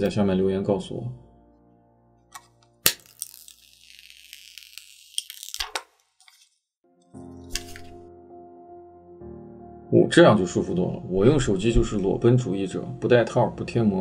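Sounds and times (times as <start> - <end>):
plastic film snapping: 2.3 - 6.5, 7.5 - 8.0
plastic film peeling off glass: 2.4 - 6.6, 7.5 - 8.0.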